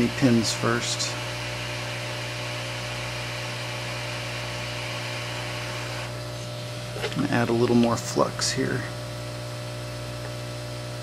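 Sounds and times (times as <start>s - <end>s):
hot air station hissing: 0.0s - 7.2s
electrical hum: 0.0s - 11.0s.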